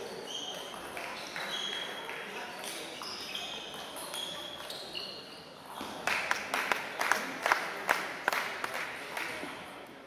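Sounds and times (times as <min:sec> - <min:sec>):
shoe squeaks on floor: 0:00.0 - 0:06.0.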